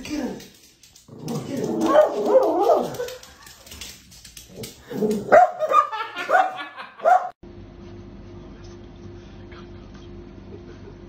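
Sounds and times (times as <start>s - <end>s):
small dog barking: 5.2s - 7.4s.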